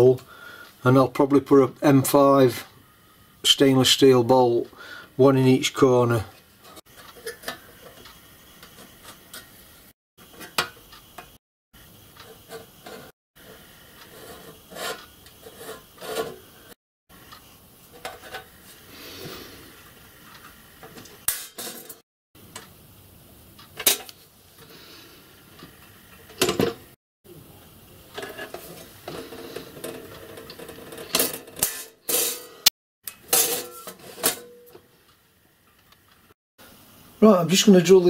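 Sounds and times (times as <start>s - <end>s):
metal scraping rub: 12.3s - 16.6s
metal tools clinking on metal plate: 33.3s - 34.8s.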